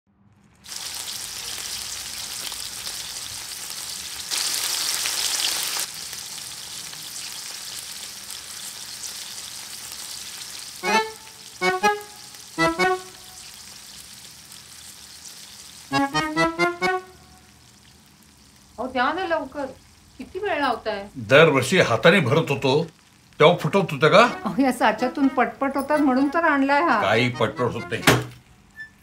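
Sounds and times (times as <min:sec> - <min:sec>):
pastries deep-frying in oil: 0:00.3 - 0:27.4
short musical notes: 0:10.8 - 0:13.5, 0:15.9 - 0:17.5, 0:23.9 - 0:28.4.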